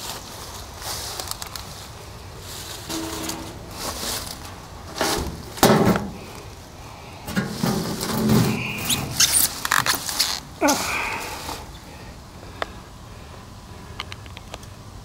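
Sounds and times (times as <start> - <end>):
vines and twigs rustling: 0.0 - 6.6, 7.3 - 11.7.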